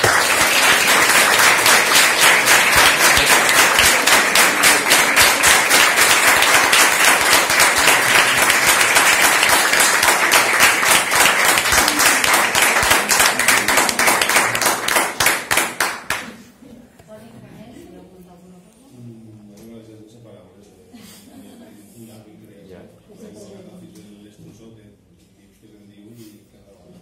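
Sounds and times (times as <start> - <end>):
audience applauding: 0.0 - 16.4.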